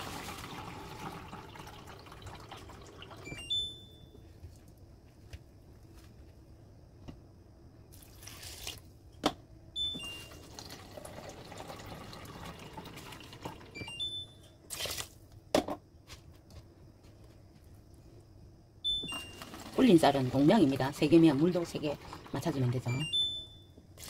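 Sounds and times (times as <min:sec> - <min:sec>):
water pouring into pot: 0:00.0 - 0:03.3, 0:10.3 - 0:13.8, 0:19.4 - 0:22.9.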